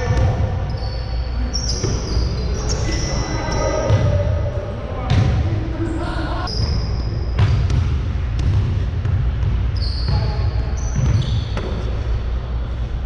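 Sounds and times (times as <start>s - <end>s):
sneakers squeaking on court: 0.0s - 4.3s, 6.4s - 11.9s
basketball bouncing on hardwood: 7.4s - 10.3s.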